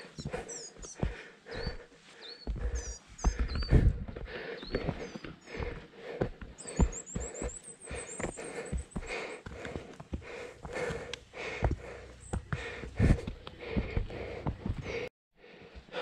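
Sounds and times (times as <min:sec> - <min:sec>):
small bird chirping: 0:00.0 - 0:03.9, 0:06.5 - 0:09.4
footsteps on path: 0:00.0 - 0:16.0
person breathing: 0:00.0 - 0:16.0.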